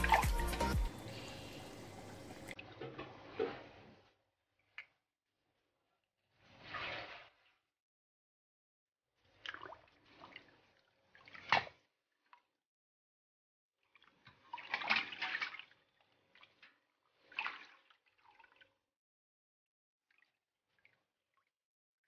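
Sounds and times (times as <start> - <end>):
water splashing in a steel bowl: 0.0 - 4.0, 6.4 - 7.6, 9.3 - 12.5, 13.9 - 18.9, 20.1 - 21.6.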